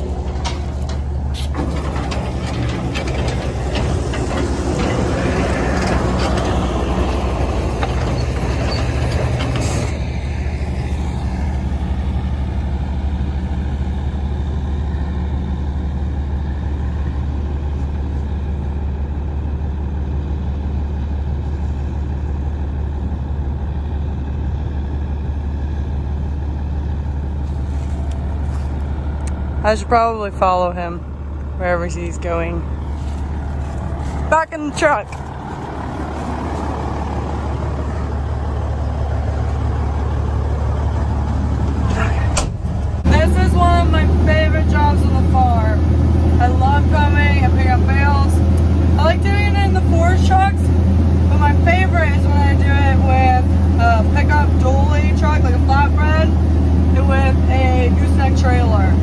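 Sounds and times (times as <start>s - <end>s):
clatter and rustling: 0.0s - 10.1s, 32.7s - 37.0s
diesel engine idling: 0.0s - 59.0s
skid loader working: 0.0s - 59.0s.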